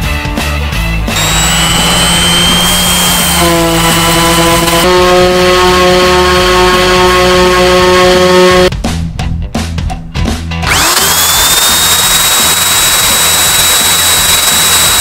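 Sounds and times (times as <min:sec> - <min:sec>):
orbital sander grinding: 0:01.1 - 0:08.7, 0:10.7 - 0:15.0.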